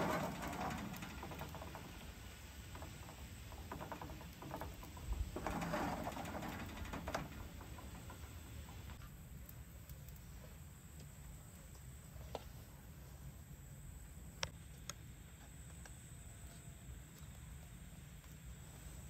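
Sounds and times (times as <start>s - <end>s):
frying pan rattling on stove grate: 0.0s - 9.0s.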